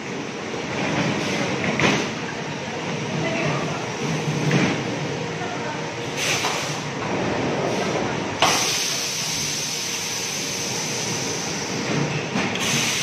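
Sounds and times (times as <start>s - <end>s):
welding machine hiss: 8.4s - 11.8s, 12.5s - 13.0s.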